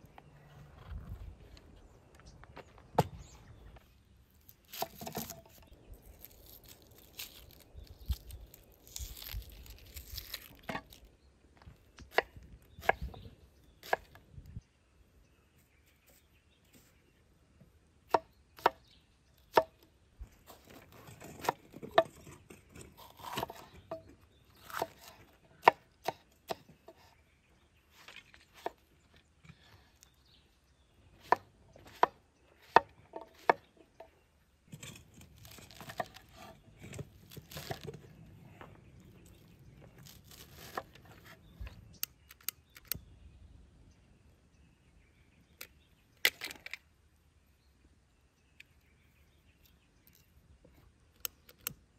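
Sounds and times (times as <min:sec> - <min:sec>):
rustle of greens being handled: 0:05.9 - 0:11.1.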